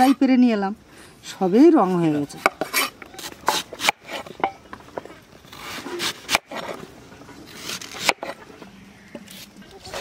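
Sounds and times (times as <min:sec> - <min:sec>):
knife scraping mango peel: 0:05.5 - 0:08.4.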